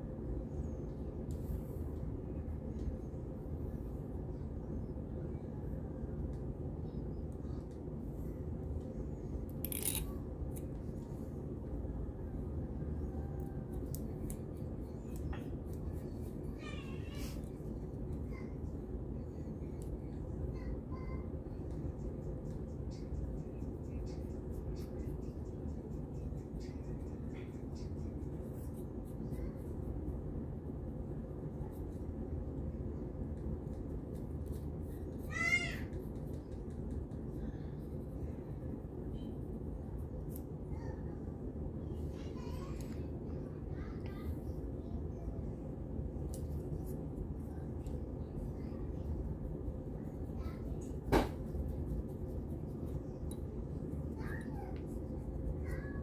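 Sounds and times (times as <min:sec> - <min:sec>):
low background hum: 0:00.0 - 0:56.0
comb scratching through hair: 0:09.5 - 0:10.8.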